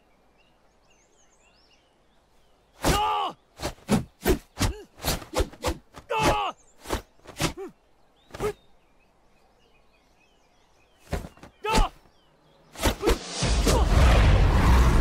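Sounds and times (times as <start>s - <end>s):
short sharp shouts: 2.8s - 3.4s, 6.0s - 6.6s, 11.5s - 12.0s
man shouting: 2.9s - 3.4s, 6.1s - 6.6s, 11.6s - 12.0s.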